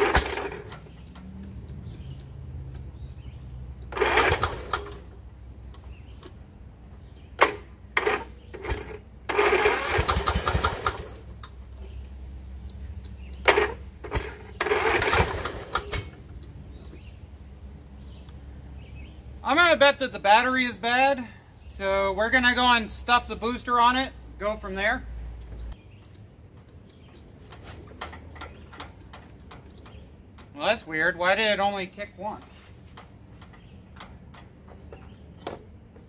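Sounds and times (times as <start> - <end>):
engine cranking by electric starter: 0.0 - 6.1, 7.4 - 11.6, 12.9 - 17.1.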